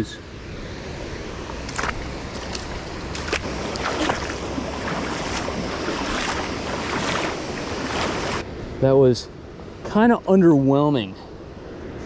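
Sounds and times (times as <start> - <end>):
river water rushing: 0.5 - 8.4
splashes from wading: 1.6 - 8.4.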